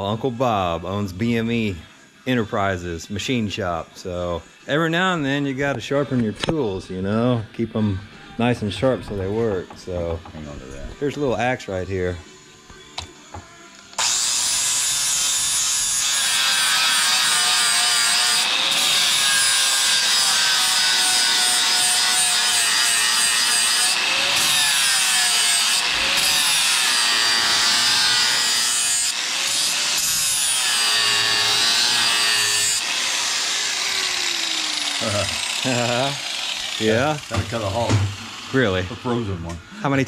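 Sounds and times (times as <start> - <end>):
angle grinder grinding steel: 14.0 - 39.9.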